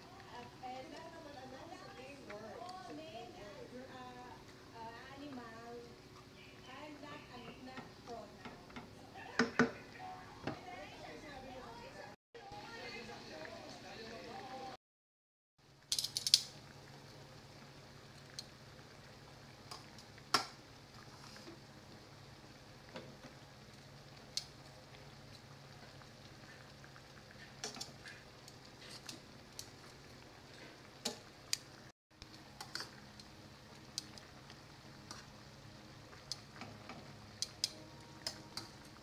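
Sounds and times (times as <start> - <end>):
metal tongs clicking on pan: 15.9 - 16.5, 27.6 - 27.9, 32.6 - 33.3, 33.9 - 34.2, 36.3 - 38.8.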